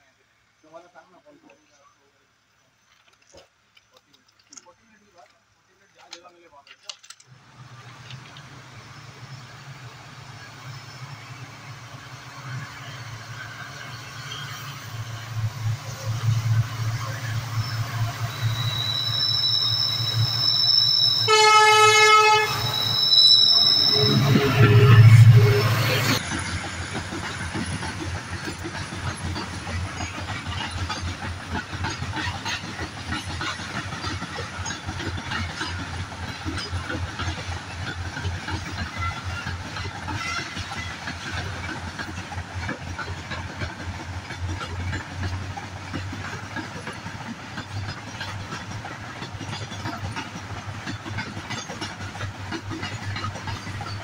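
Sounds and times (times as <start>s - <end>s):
train wheels clicking over rail joints: 2.8s - 54.0s
freight train rumbling past: 7.3s - 54.0s.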